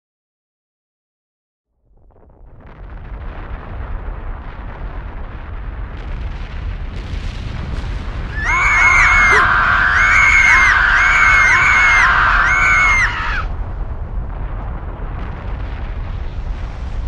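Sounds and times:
deep volcanic rumble: 0:01.8 - 0:17.0
high wailing cries: 0:08.3 - 0:13.5
sharp cracks: 0:08.3 - 0:13.5.

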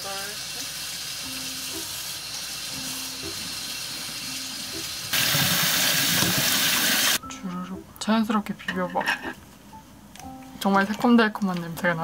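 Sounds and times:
tap water running into a pot: 0:00.0 - 0:07.2.

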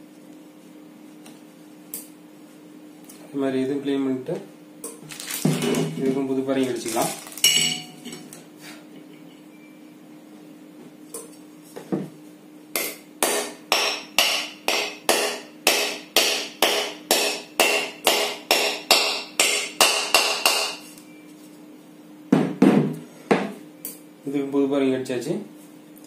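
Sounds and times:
hammer tapping metal: 0:12.8 - 0:20.8.

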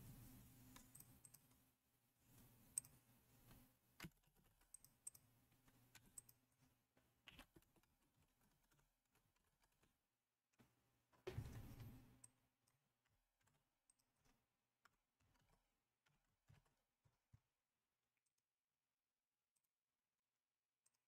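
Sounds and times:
typing on computer keyboard: 0:07.2 - 0:10.0.

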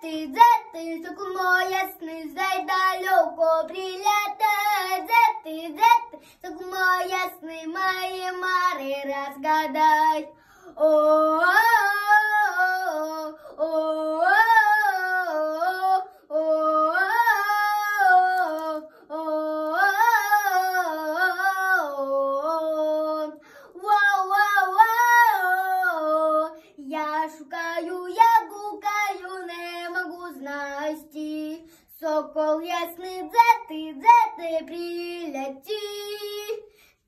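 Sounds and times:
girl singing long wavering notes: 0:07.0 - 0:28.8.

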